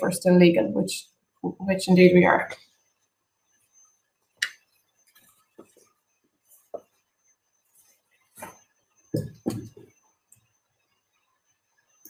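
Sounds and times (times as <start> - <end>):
heavy thumps: 9.2 - 9.9.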